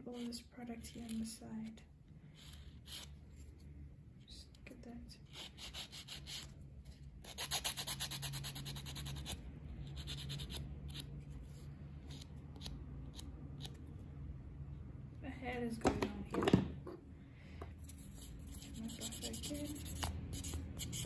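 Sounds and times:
nail file rasping: 2.3s - 3.5s, 5.2s - 6.6s, 7.2s - 13.9s, 17.8s - 21.0s.

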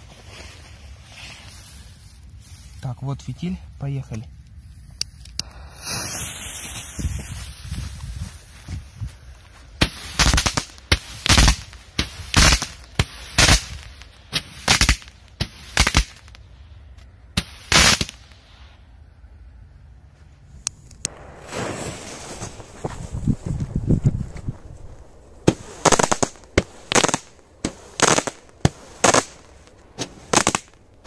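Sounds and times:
torch lighter hissing: 5.4s - 7.1s
firework bangs: 5.4s - 7.6s, 9.8s - 16.4s, 17.4s - 18.4s, 21.1s - 23.8s, 25.4s - 31.0s.

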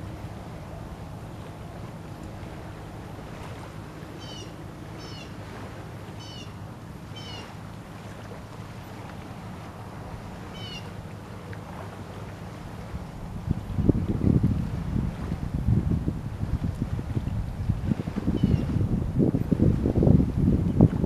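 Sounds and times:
boat motor rumbling: 0.0s - 21.0s
bird mewing call: 4.2s - 5.4s, 6.2s - 7.5s, 10.5s - 10.9s
wind on microphone: 12.5s - 21.0s.

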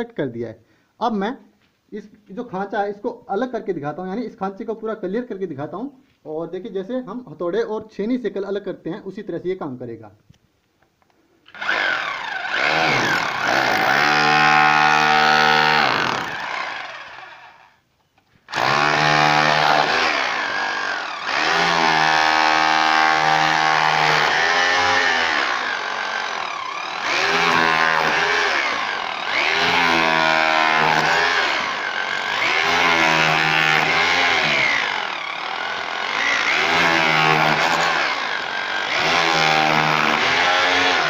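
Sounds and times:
hammer drill chiselling brick: 11.5s - 17.7s, 18.5s - 41.0s.

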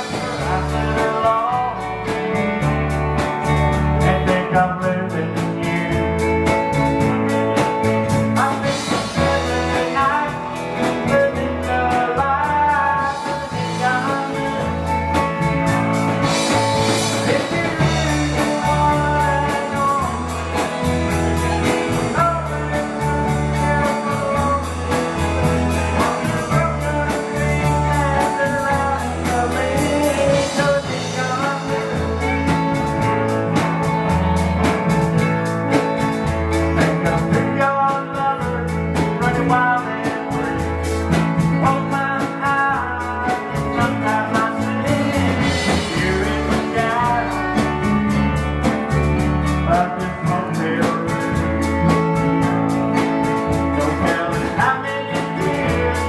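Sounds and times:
bass line: 0.0s - 56.0s
live country band playing: 0.0s - 56.0s.

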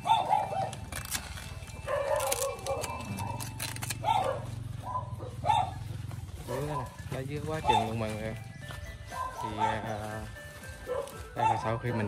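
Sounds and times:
dog barking: 0.0s - 0.8s, 1.8s - 8.2s, 9.1s - 10.1s, 10.8s - 12.0s
scissors snipping leaves: 0.1s - 4.4s
leaf rustle: 0.2s - 4.0s.

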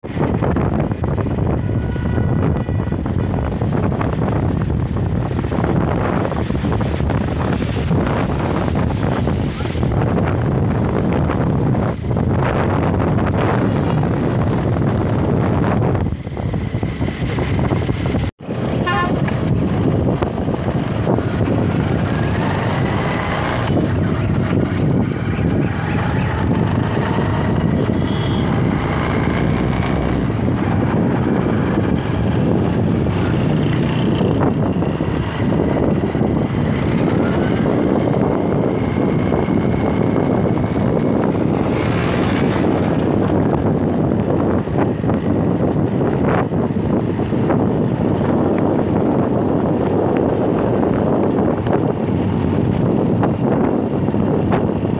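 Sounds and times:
vehicle road noise: 0.0s - 54.9s
wind rushing over microphone: 0.0s - 54.9s
faint traffic horns: 27.8s - 28.7s.

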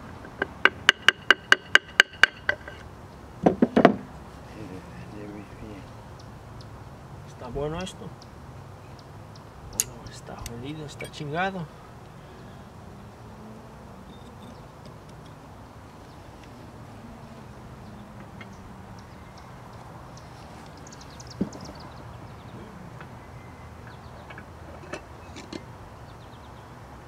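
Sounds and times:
metal tools clinking: 9.8s - 11.4s.

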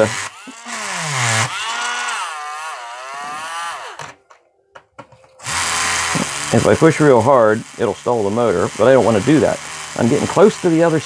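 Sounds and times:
rotary tool grinding stone: 0.0s - 4.2s, 5.4s - 11.0s.

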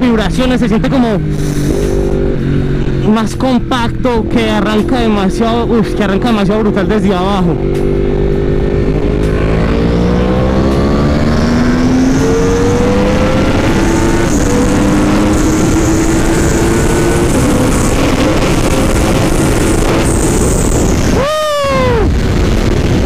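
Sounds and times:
motorcycle engine accelerating: 0.0s - 23.0s
wind rushing: 5.5s - 23.0s.

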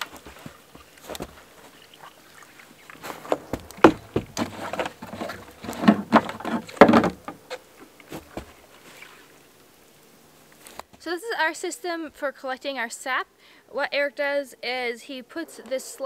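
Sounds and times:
plastic jugs knocking and rattling: 3.0s - 8.6s.

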